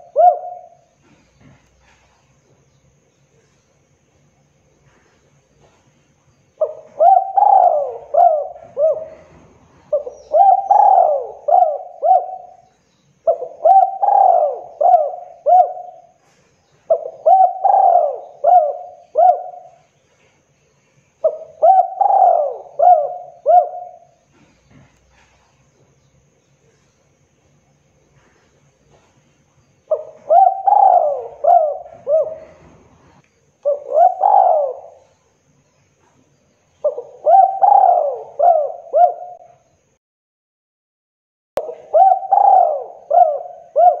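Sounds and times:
dove cooing: 0:00.0 - 0:02.2, 0:06.6 - 0:20.0, 0:21.2 - 0:25.4, 0:28.1 - 0:35.3, 0:36.0 - 0:39.7, 0:41.6 - 0:44.0.

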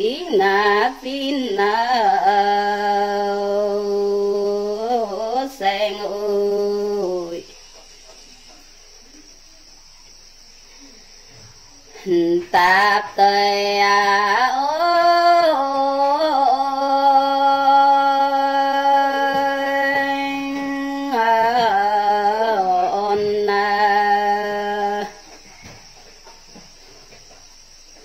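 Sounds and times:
woman singing unaccompanied folk song: 0:00.0 - 0:08.4, 0:11.9 - 0:26.0.

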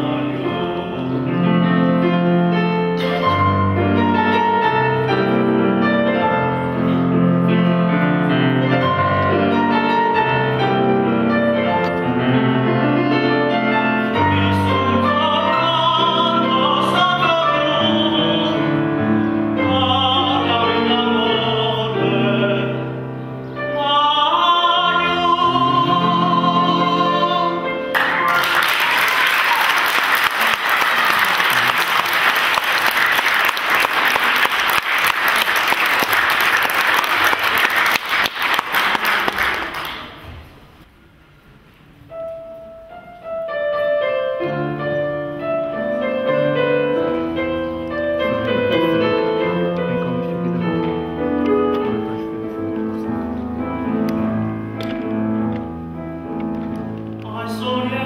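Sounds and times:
man singing classical song: 0:00.0 - 0:07.7, 0:11.5 - 0:28.3, 0:46.0 - 0:52.3, 0:57.2 - 0:58.0
grand piano: 0:00.0 - 0:58.0
audience applause: 0:27.9 - 0:40.3.

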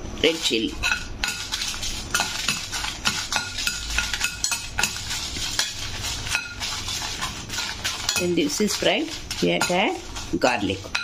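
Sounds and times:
light sizzle of frying: 0:00.1 - 0:11.0
ladle clinking and scraping pan: 0:00.2 - 0:11.0.

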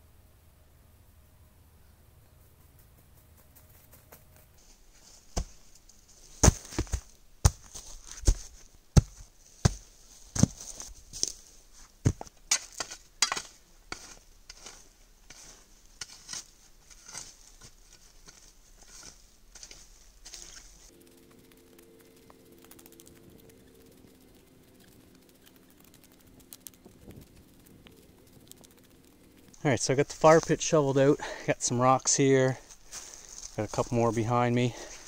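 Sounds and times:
shovel stabbing and scraping soil: 0:04.9 - 0:20.9, 0:29.9 - 0:31.6.

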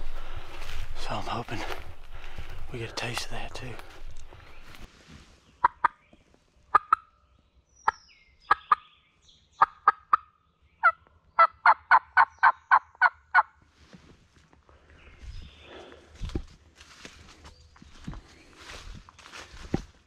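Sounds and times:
turkey call yelps: 0:06.7 - 0:07.1.

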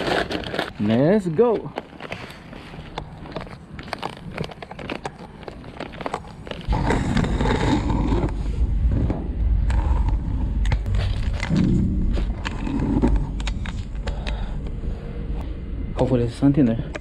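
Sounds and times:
plastic bag crinkling: 0:00.0 - 0:07.8
loud low rumble: 0:06.7 - 0:16.7.

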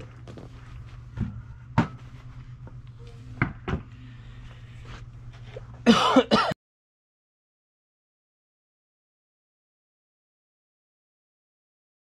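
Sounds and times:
low steady hum: 0:00.0 - 0:06.6.

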